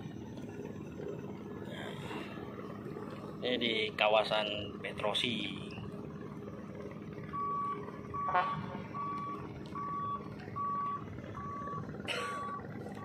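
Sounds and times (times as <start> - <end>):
low steady hum: 0.0 - 13.0
backup alarm beeping: 5.6 - 13.0.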